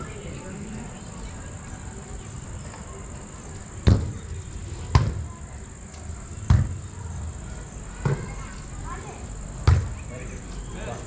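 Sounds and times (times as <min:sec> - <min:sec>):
volleyball being hit: 0:06.5 - 0:06.8, 0:09.6 - 0:10.0.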